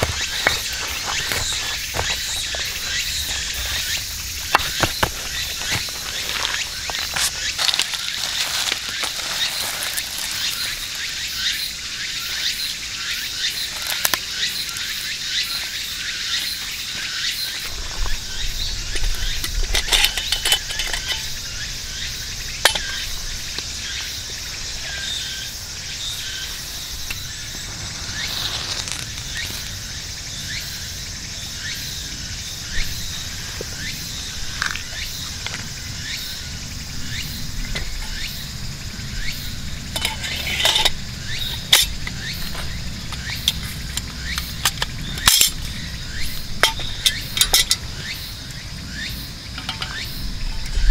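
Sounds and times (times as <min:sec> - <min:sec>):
clicks and rustles from handling twigs: 0:00.0 - 0:11.7, 0:13.4 - 0:21.7, 0:27.0 - 0:29.8, 0:39.9 - 0:48.6
insects chirring: 0:00.0 - 0:50.9.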